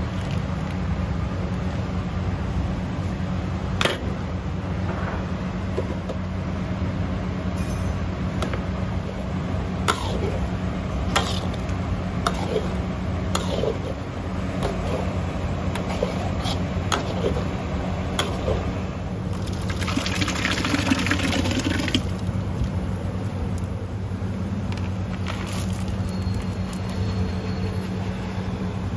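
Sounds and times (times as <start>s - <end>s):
steady low hum: 0.0s - 28.9s
liquid splashing: 19.4s - 22.2s.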